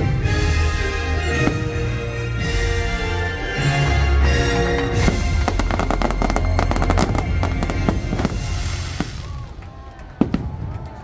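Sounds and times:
show music with held notes: 0:00.0 - 0:09.5
fireworks popping and crackling: 0:04.9 - 0:11.0.

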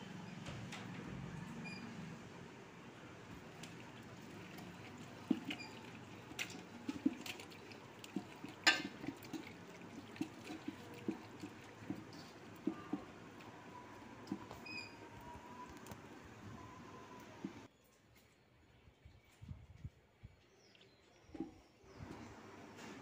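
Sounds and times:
wet squelching of marinade mixing: 0:03.3 - 0:17.7.

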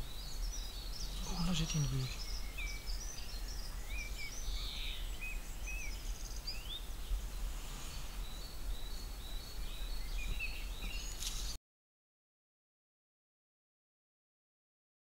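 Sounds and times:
small birds singing and chirping: 0:00.0 - 0:11.6.

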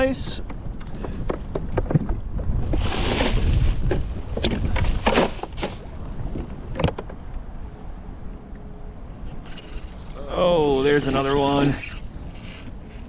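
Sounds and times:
wind rumble on microphone: 0:00.0 - 0:13.0
ice and bag rustling: 0:02.7 - 0:04.1.

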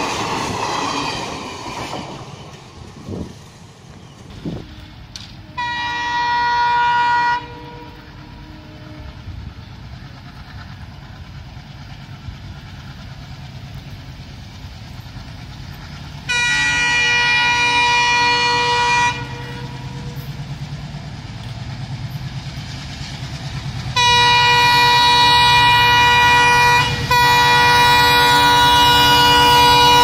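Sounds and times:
train rumbling: 0:00.0 - 0:30.0
locomotive horn blasts: 0:04.4 - 0:09.3, 0:16.3 - 0:20.3, 0:24.0 - 0:30.0.

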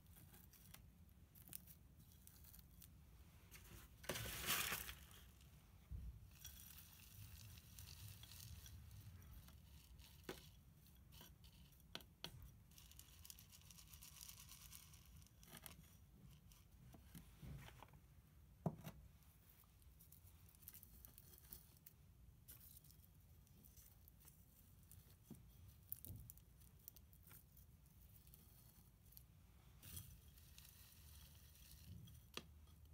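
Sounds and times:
potting mix rustling and scraping: 0:01.4 - 0:05.6, 0:06.2 - 0:11.8, 0:19.6 - 0:32.9
light clicks of grains: 0:06.3 - 0:11.6.

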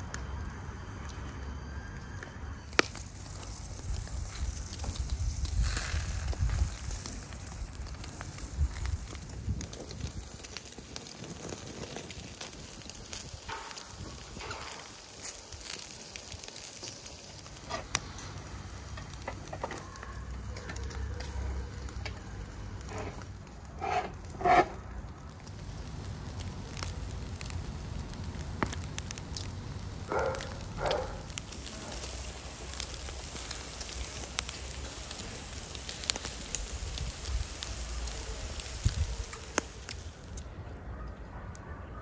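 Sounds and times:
charcoal fire crackling: 0:00.0 - 0:42.0
food sizzling on skewers: 0:00.1 - 0:40.7.

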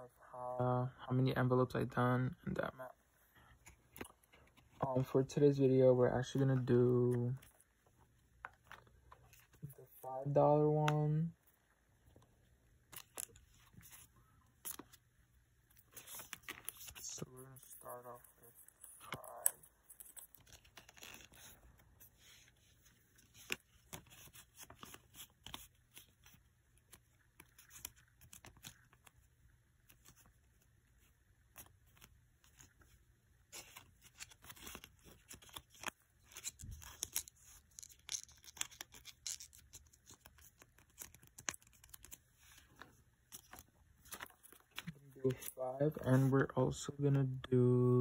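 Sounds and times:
paper rustling and crinkling: 0:15.7 - 0:46.4.

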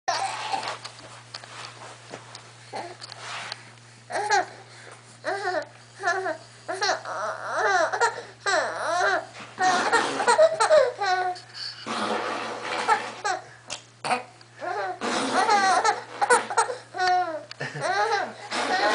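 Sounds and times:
baby laughing and squealing: 0:06.0 - 0:11.4, 0:12.7 - 0:13.5, 0:14.6 - 0:18.9.

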